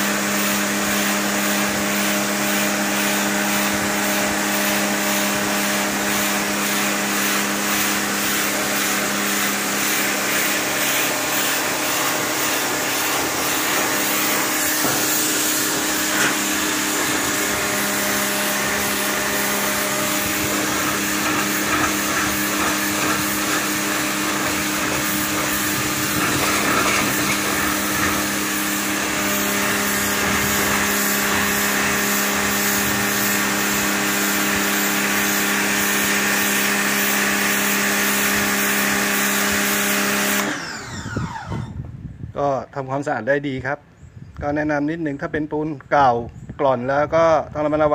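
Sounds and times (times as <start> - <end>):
water jet hissing: 0.0 - 40.4
pressure washer motor hum: 0.0 - 42.0.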